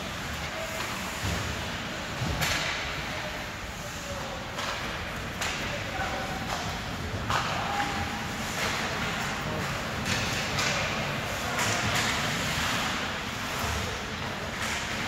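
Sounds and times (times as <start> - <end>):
murmur of spectators: 0.0 - 15.0
hockey sticks clacking puck: 4.0 - 15.0.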